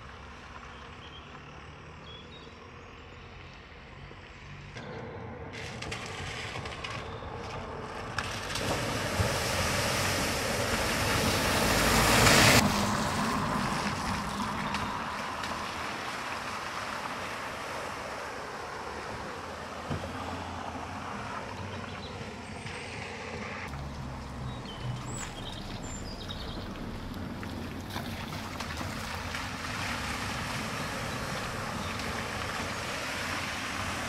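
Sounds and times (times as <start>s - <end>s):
cars splashing through water: 5.5s - 34.0s
water washing: 7.7s - 20.8s, 23.7s - 34.0s.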